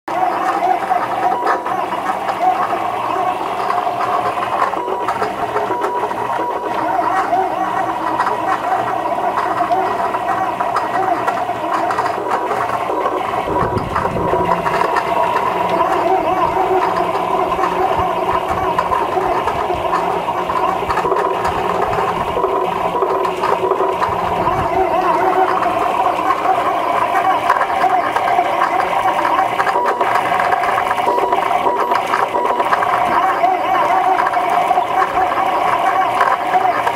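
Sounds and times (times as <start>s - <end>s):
steady mechanical whir: 0.1s - 36.9s
stepper motors whining: 0.1s - 36.9s
deep hum: 4.5s - 33.2s.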